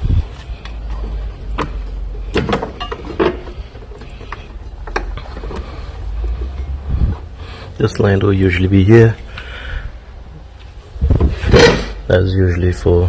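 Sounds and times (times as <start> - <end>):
steady low rumble: 3.6 - 11.3.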